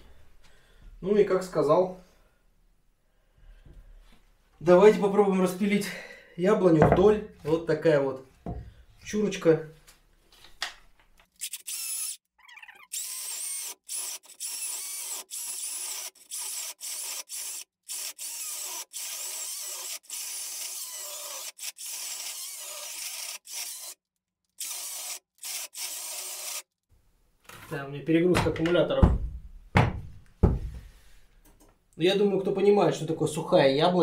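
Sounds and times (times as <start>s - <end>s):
cordless chainsaw cutting wood: 12.9s - 24.0s, 24.6s - 26.7s.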